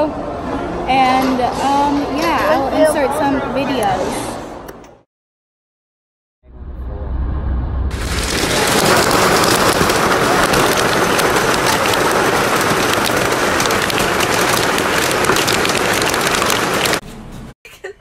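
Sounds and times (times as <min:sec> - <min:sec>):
heavy rain on car windshield: 0:07.9 - 0:17.0.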